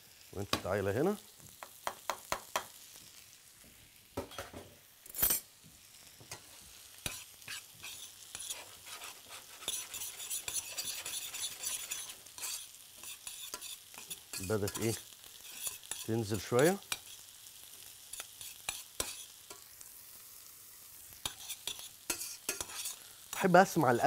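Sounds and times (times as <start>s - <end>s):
food sizzling in a pan: 0.0s - 24.0s
metal utensil clinking on pan: 9.7s - 16.1s, 21.2s - 23.0s.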